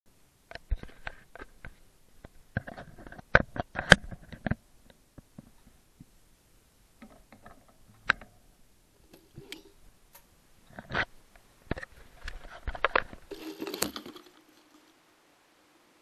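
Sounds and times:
clicks and knocks of handling: 0.5 - 5.8, 7.0 - 8.4, 9.1 - 14.7.

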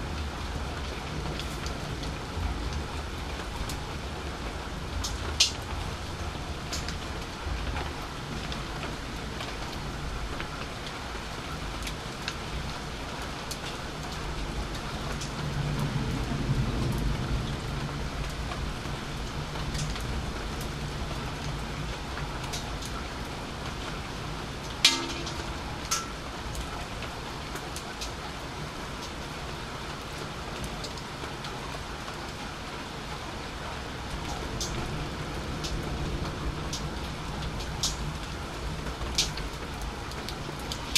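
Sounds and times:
raindrops tapping: 0.0 - 40.9
steady rain: 0.0 - 40.9
low thunder rumble: 15.4 - 22.4.

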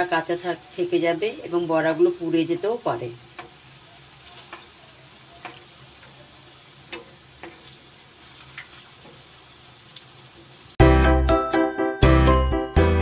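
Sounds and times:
fritters sizzling in hot oil: 0.0 - 10.8
wooden spatula tapping pan: 3.3 - 3.6, 5.4 - 6.2.

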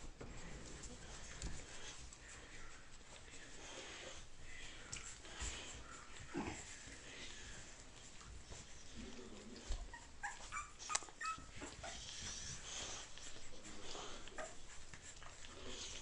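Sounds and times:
puppies whimpering and squeaking: 5.8 - 16.0.

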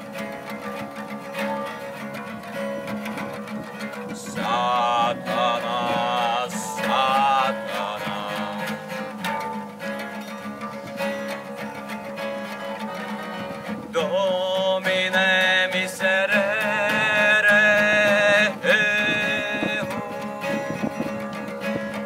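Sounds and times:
fingerpicked acoustic guitars: 0.0 - 22.0
person singing: 3.8 - 9.4, 12.4 - 22.0.

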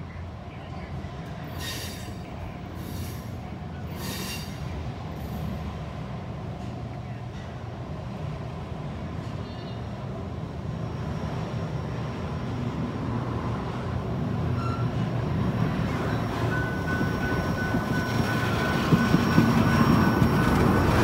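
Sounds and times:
rail car wheels rumbling: 0.0 - 21.0
thin steady squeal: 15.9 - 21.0.

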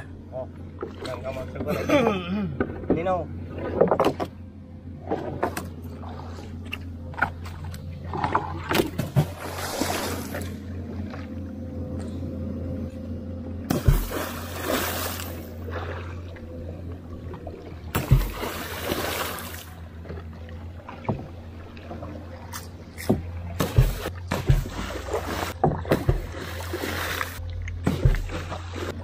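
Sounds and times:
pole plunging into water: 5.0 - 11.3, 13.6 - 16.5, 17.2 - 29.0.

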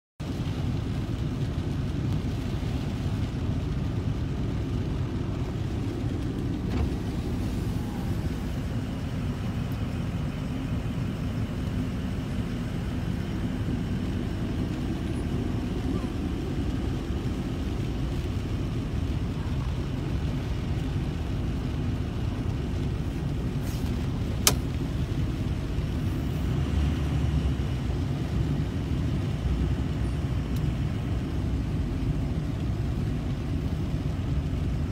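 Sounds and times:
vehicle engine rumble from cab: 0.2 - 34.9
sharp click: 24.4 - 24.7.

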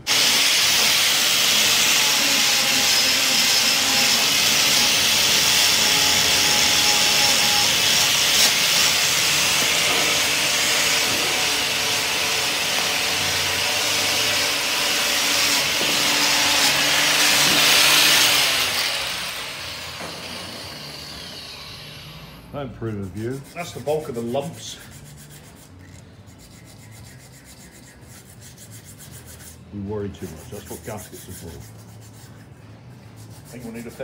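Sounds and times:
angle grinder on metal: 0.0 - 22.5.

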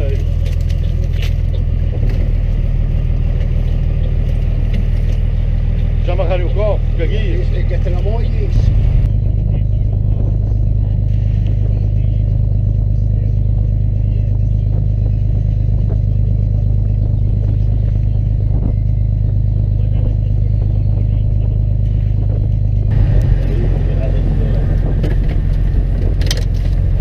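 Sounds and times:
boat engine droning: 0.0 - 27.0.

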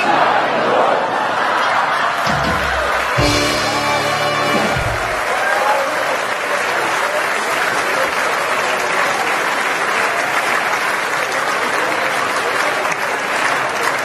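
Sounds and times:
audience applauding: 1.1 - 14.0
music: 2.3 - 5.3.

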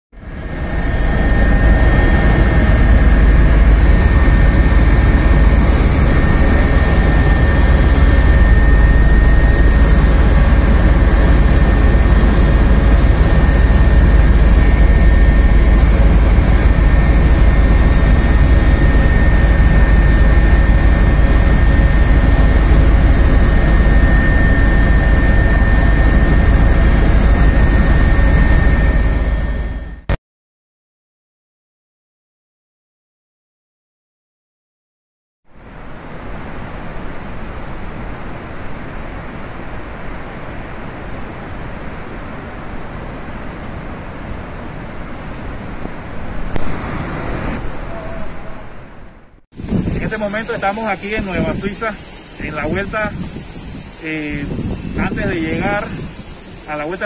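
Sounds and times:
helicopter engine and rotor drone: 0.2 - 30.2, 35.6 - 57.0
thin high whine: 0.2 - 30.2, 35.6 - 57.0.

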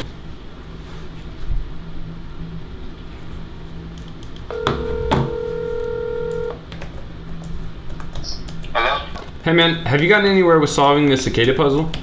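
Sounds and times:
phone ringback tone: 4.5 - 6.6.

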